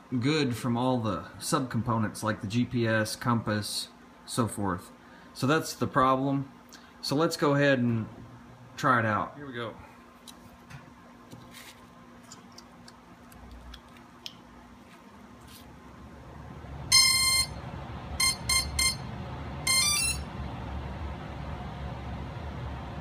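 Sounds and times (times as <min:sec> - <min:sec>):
drone start-up beeps: 0:16.9 - 0:17.6, 0:18.2 - 0:20.3.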